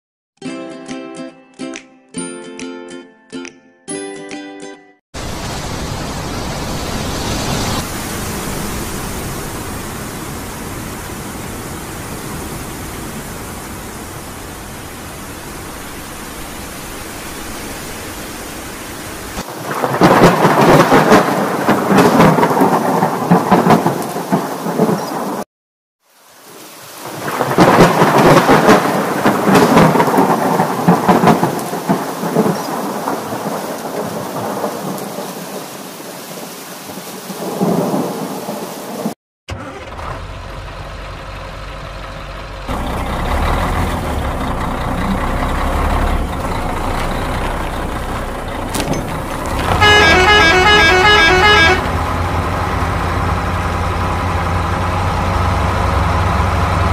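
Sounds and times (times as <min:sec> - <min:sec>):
heavy rain: 0:05.2 - 0:39.7, 0:42.7 - 0:56.9
thunder rolling: 0:19.1 - 0:25.4, 0:27.0 - 0:35.5, 0:43.6 - 0:53.3.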